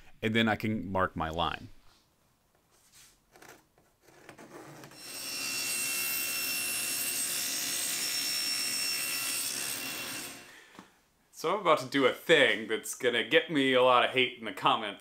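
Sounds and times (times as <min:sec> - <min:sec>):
power saw sawing wood: 0:05.0 - 0:10.6.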